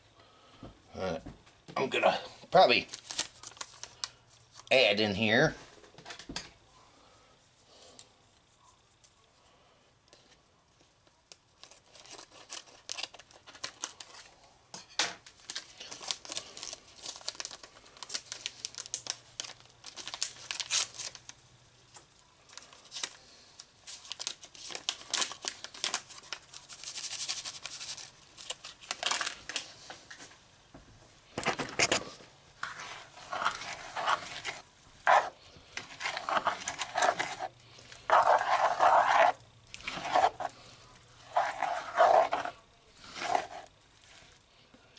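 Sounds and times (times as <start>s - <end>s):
seasoning packet crinkling and tearing: 2.6s - 4.7s, 11.2s - 14.4s, 15.3s - 29.8s, 31.5s - 44.4s
small crackles: 2.6s - 4.8s, 7.7s - 14.6s, 15.2s - 44.9s.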